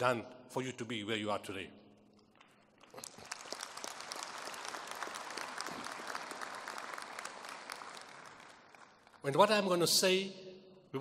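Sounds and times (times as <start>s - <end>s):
audience applauding: 2.3s - 9.6s.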